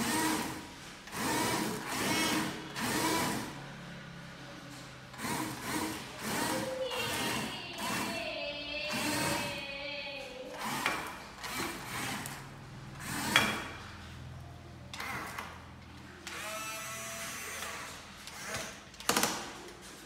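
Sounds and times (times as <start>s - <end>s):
electric gear motors whining: 0.0s - 4.2s, 5.1s - 9.7s, 10.5s - 13.8s, 16.2s - 19.2s.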